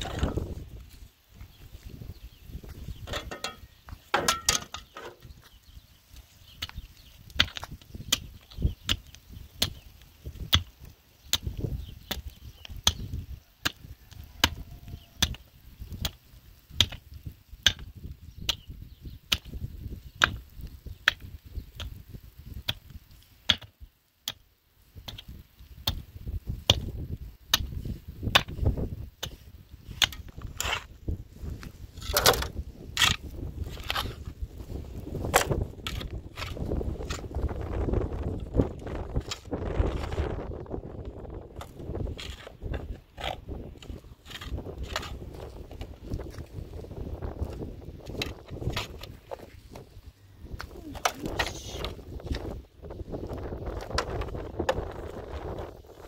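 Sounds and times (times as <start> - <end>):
metal hoe chopping stony soil: 0.0 - 0.7, 3.0 - 5.4, 6.4 - 13.8, 14.4 - 18.7, 19.3 - 20.4, 21.0 - 24.4, 25.0 - 40.5, 41.2 - 49.8.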